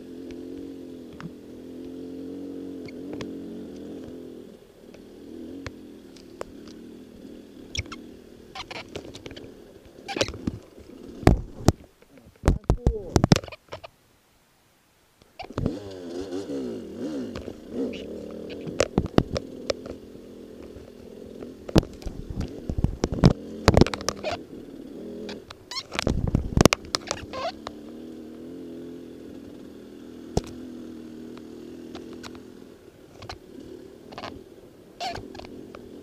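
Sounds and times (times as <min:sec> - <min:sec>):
dirt bike engine revving: 0:00.0 - 0:11.9, 0:15.4 - 0:36.0
bike knocking over bumps: 0:10.1 - 0:13.5, 0:18.2 - 0:20.0, 0:20.6 - 0:24.4.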